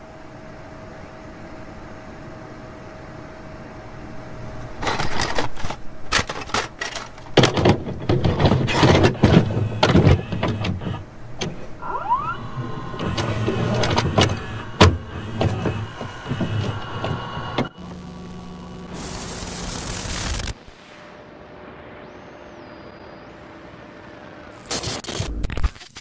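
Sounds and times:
electronic static crackling: 8.0 - 26.0
rising warble: 11.7 - 17.8.

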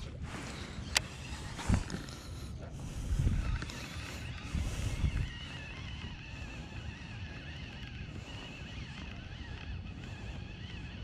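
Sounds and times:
fishing reel click: 0.4 - 2.4.

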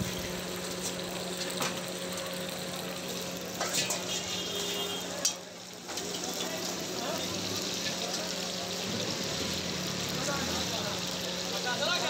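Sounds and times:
chicken frying in hot oil: 0.0 - 12.0
metal utensils clinking: 3.6 - 4.1.

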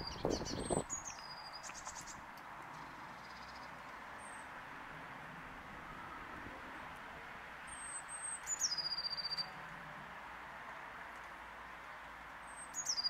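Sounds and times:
faint background noise: 0.0 - 13.0
bird singing high notes and trill: 7.7 - 9.5, 12.6 - 13.0.

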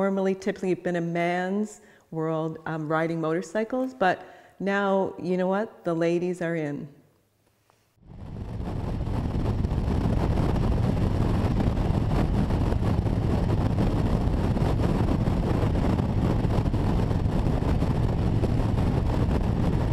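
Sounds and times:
wind rushing over microphone: 8.0 - 19.9.

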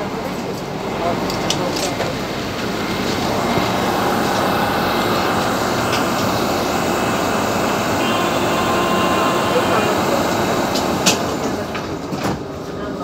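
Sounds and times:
train wheels and motors rumbling: 0.0 - 13.0
faint whining tones: 2.6 - 12.0
high thin tones: 3.3 - 11.4.

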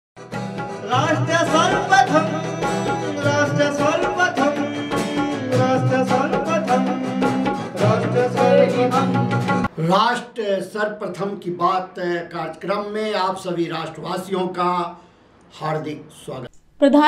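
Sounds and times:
news theme music with drum beat: 0.2 - 9.7.

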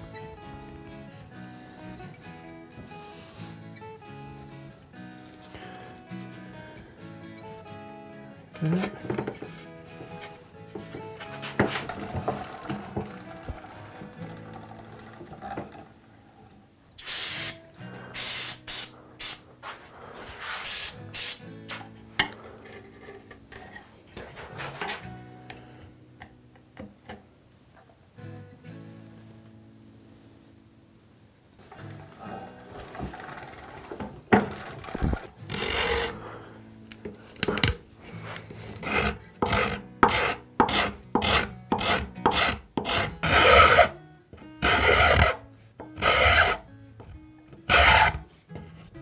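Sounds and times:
aerosol spray can hissing: 17.0 - 17.6, 18.2 - 19.5, 20.5 - 21.4
metal file rasping on wood: 35.5 - 36.2, 38.6 - 44.0, 44.6 - 46.6, 47.7 - 48.2.

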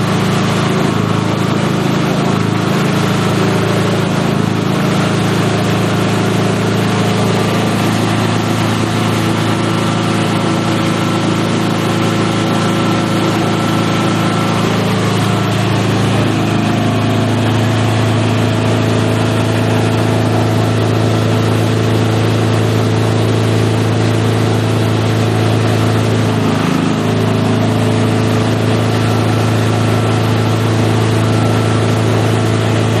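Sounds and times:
shredder motor humming: 0.0 - 33.0.

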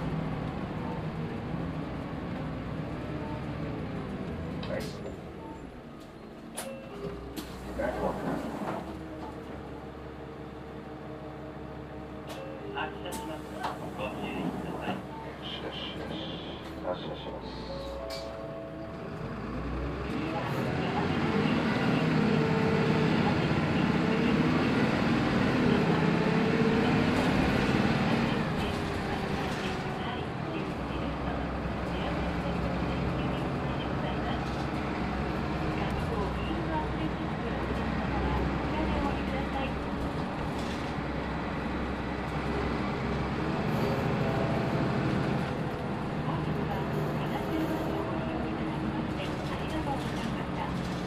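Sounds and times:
bus diesel engine running: 0.0 - 51.0.

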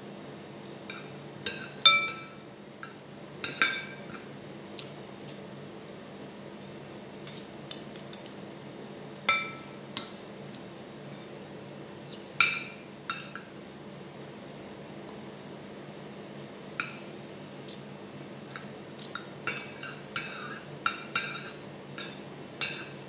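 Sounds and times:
cutlery clinking on plate: 0.9 - 4.3, 6.9 - 8.4.

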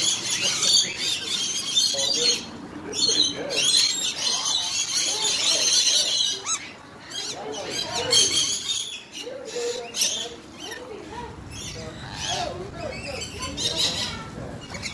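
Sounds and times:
lorikeets chattering and screeching: 0.0 - 14.9.

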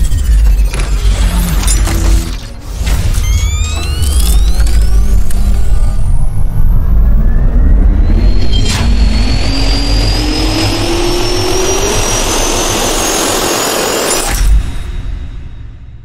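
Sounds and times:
jet turbine rush with rising whine: 7.4 - 14.2.

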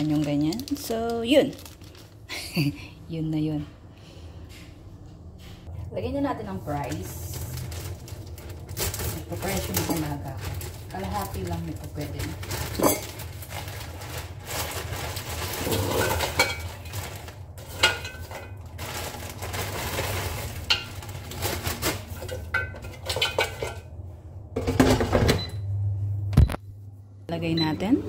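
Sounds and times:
plastic bag rustling: 0.0 - 2.8, 6.5 - 22.6
fries clattering in basket: 6.8 - 24.0
steady low hum: 20.3 - 28.0.

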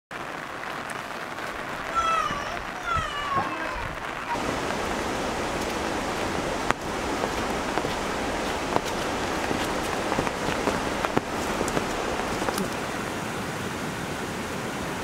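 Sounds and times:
rain falling steadily: 0.1 - 15.0.

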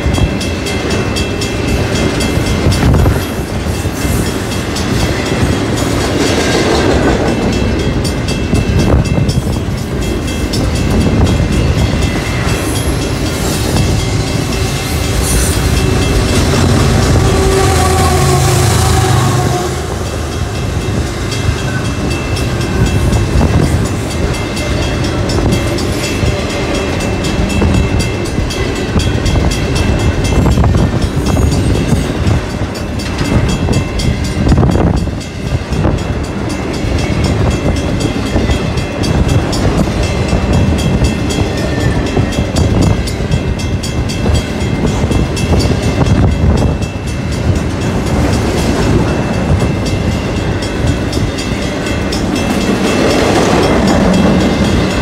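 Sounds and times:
train wheels rumbling on rail: 0.0 - 55.0.

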